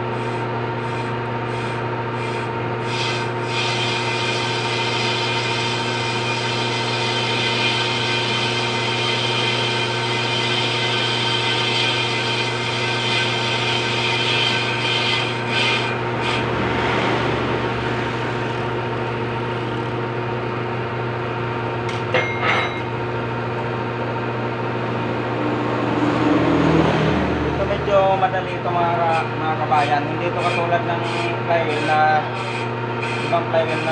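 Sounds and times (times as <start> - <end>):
metal lathe humming: 0.0 - 26.4, 27.4 - 33.9
cutting tool scraping metal: 0.2 - 17.4, 28.7 - 33.9.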